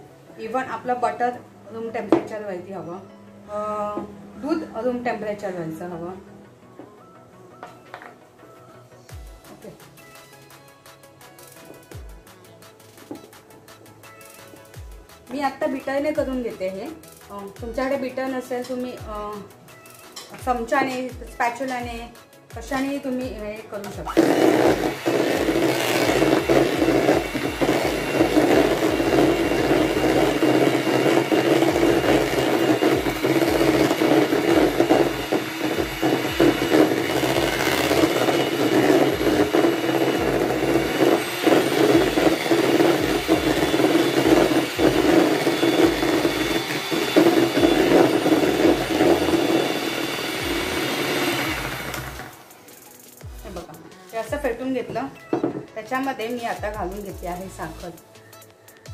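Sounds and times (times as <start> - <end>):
electric hand mixer running: 24.1 - 52.7.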